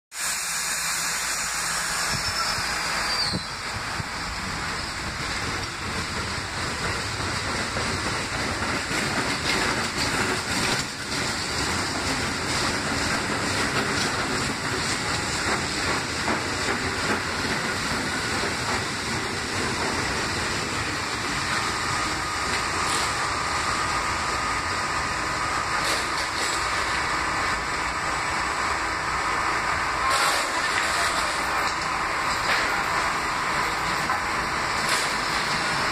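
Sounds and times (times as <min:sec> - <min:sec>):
subway train rumbling on track: 0:00.1 - 0:35.9
high wheel squeal: 0:00.4 - 0:05.1.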